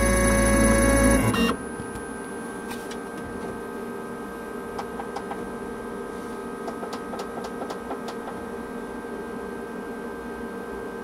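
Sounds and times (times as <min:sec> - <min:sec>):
engraving machine hum: 0:00.0 - 0:01.6
steady whine: 0:00.0 - 0:06.1.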